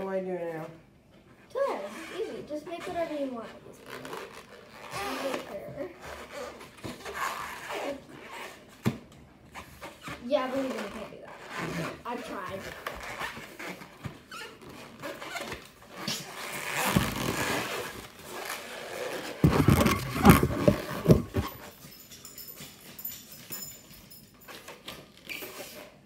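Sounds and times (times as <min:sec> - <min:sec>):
balloons squeaking and rubbing: 0:01.6 - 0:08.8, 0:09.5 - 0:21.7, 0:24.6 - 0:26.0
hand pump pushing air: 0:19.4 - 0:21.6.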